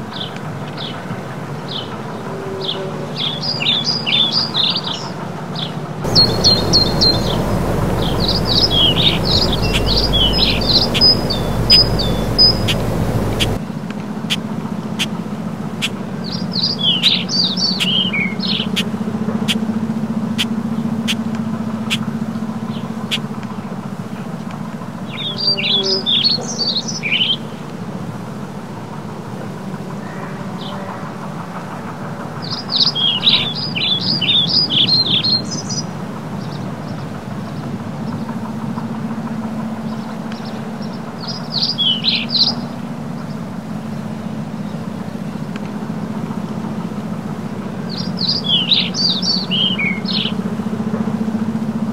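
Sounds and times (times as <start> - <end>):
distant tractor engine drone: 6.0 - 13.6
songbird singing: 6.0 - 13.6.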